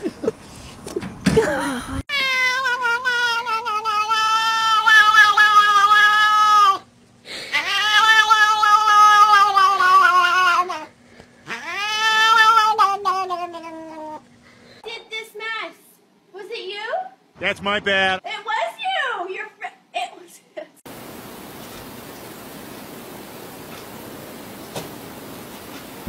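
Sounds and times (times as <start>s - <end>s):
cat yowling: 2.1s - 6.9s, 7.5s - 10.9s, 11.5s - 14.2s.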